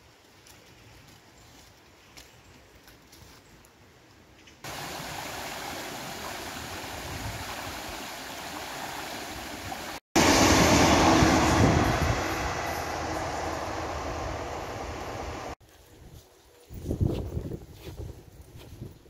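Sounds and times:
river rushing: 0:04.7 - 0:15.6
passenger train rumbling past: 0:08.4 - 0:15.6.

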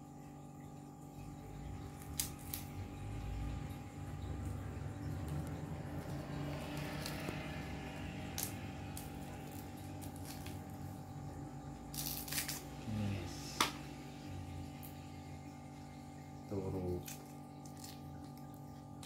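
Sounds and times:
low hum: 0:00.0 - 0:19.0
knife cutting fibrous husk: 0:11.9 - 0:13.8.

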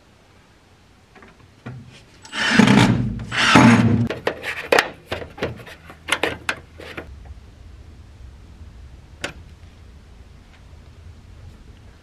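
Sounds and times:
loud rough scrapes on metal: 0:02.2 - 0:04.8.

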